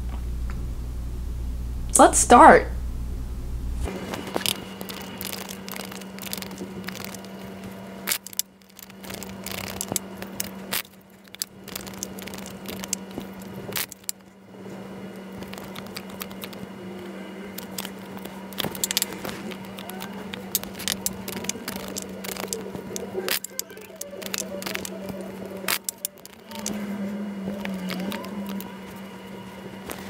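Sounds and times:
steady low hum: 0.0 - 30.0
cards clicking and slapping: 4.0 - 14.3, 15.4 - 16.6, 17.5 - 26.9
cards shuffling: 17.6 - 26.9.

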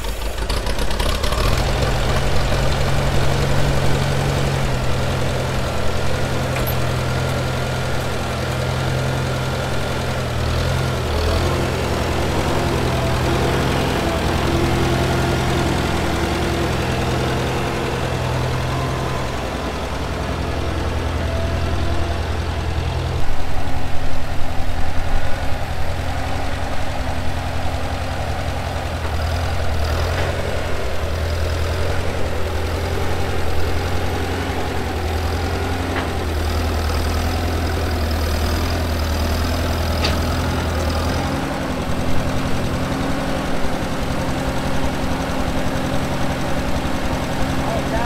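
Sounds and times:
engine idling: 0.0 - 48.0.

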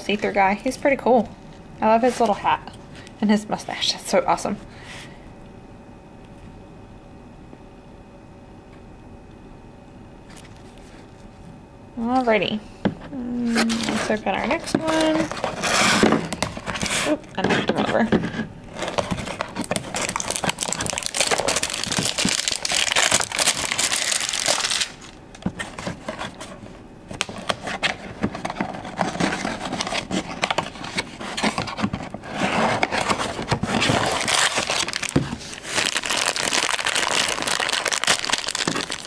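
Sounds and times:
cardboard box and foil bag crinkling: 13.5 - 17.9, 18.7 - 26.6, 27.2 - 39.0.

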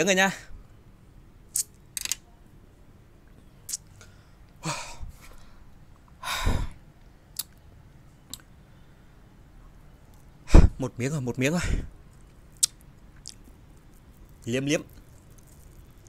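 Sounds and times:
person exhaling breathily: 6.2 - 6.8.

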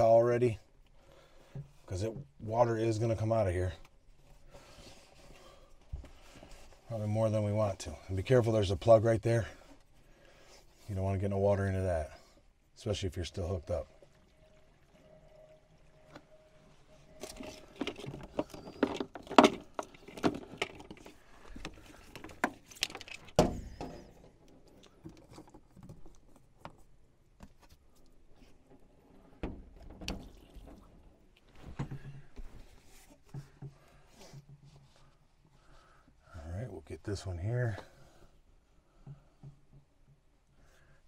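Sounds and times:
clicks knocks and rattles: 17.2 - 21.1
hands handling plastic hose fitting: 17.2 - 28.8.

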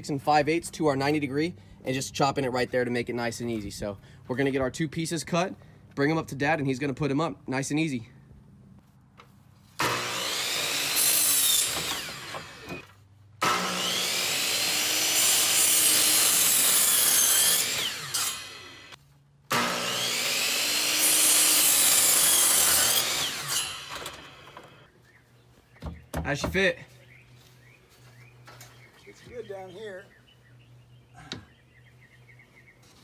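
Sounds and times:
power miter saw cutting: 9.8 - 24.9.

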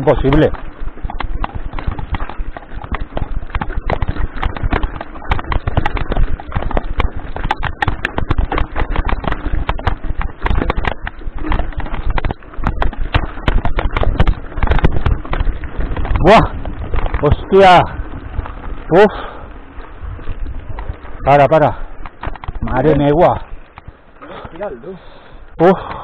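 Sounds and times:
bike tyres knocking on stones: 0.0 - 25.0.

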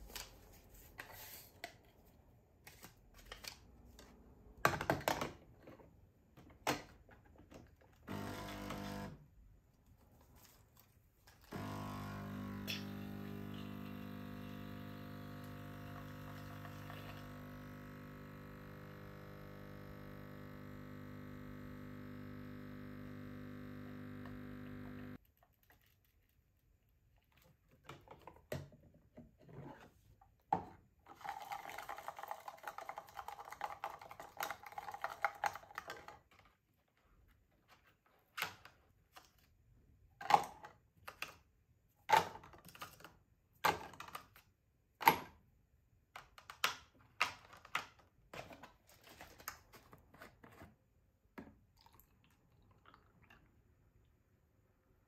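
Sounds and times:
steady hum: 11.8 - 25.2
straw stirring coffee: 31.1 - 36.2.

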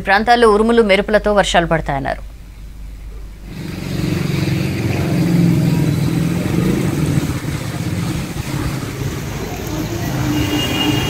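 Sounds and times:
vehicle engine running: 2.6 - 11.0
tyre hiss on wet road: 3.5 - 11.0.

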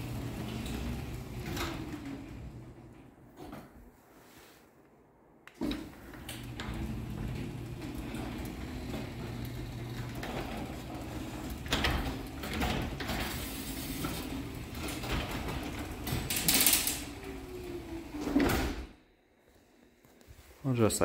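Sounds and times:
garage door opener motor hum: 0.0 - 3.3, 5.5 - 19.0
garage door rattling: 0.0 - 3.5, 5.6 - 19.0.

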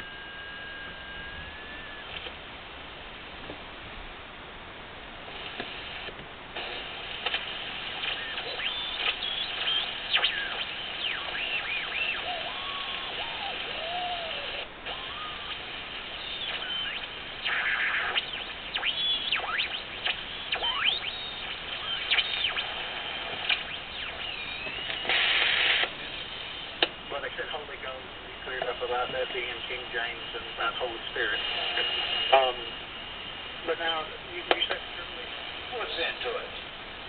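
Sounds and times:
sliding radio whistles: 0.0 - 2.3, 5.6 - 26.7, 28.5 - 32.7
radio static hiss: 0.0 - 37.0.

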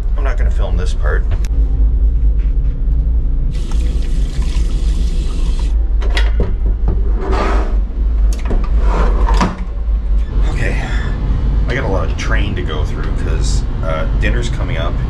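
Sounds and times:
toilet flush hiss: 3.5 - 5.8
train rumbling: 5.8 - 15.0.

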